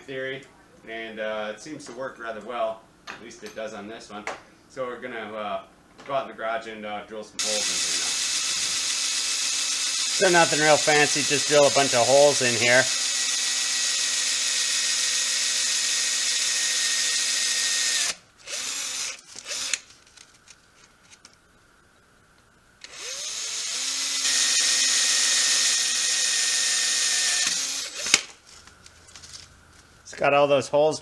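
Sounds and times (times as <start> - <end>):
cordless drill boring metal pipe: 7.4 - 19.8, 22.8 - 28.2.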